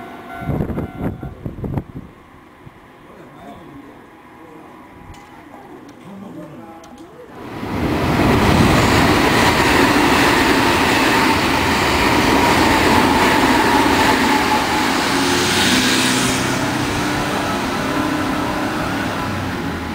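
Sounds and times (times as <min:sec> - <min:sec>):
train wheels rushing on rail: 0:07.4 - 0:19.9.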